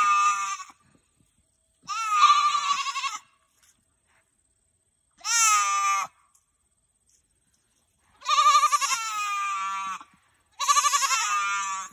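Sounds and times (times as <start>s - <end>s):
goat bleating high-pitched: 0.0s - 0.8s, 1.8s - 3.4s, 5.2s - 6.2s, 8.2s - 11.9s.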